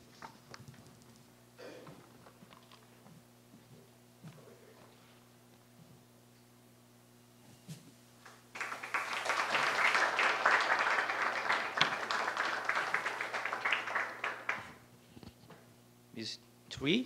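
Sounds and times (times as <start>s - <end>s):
audience applauding: 8.3s - 14.8s.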